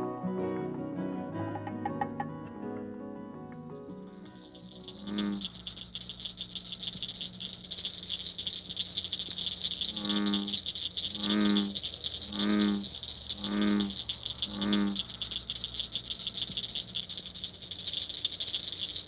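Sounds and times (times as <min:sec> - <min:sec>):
frogs trilling chorus: 0:03.8 - 0:19.0
deep frog croak: 0:03.9 - 0:19.0.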